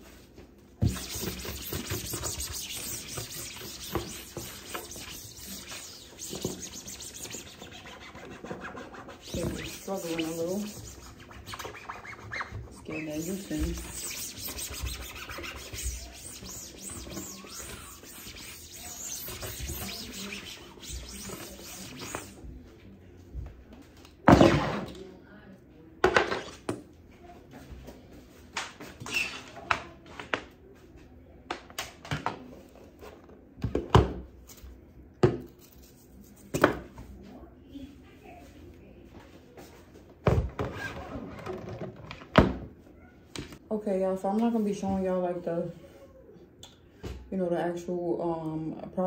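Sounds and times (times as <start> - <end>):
wipe scrubbing a desktop: 0.8 - 22.4.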